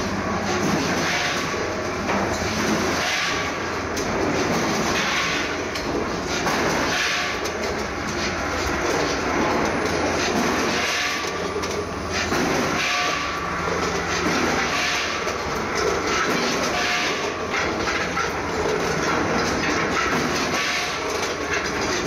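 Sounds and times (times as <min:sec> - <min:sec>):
weighing machine rumble and rattle: 0:00.0 - 0:22.0.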